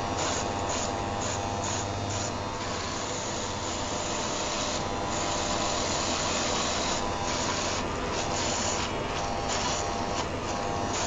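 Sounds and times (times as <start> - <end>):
electric shaver buzzing: 0.0 - 11.0
fan heater whirring: 0.0 - 11.0.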